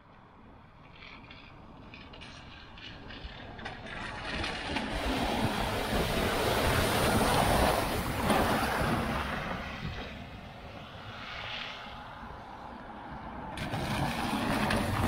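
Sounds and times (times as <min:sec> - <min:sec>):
tyres splashing through water: 0:04.0 - 0:09.8, 0:13.6 - 0:15.0
van engine: 0:13.4 - 0:15.0.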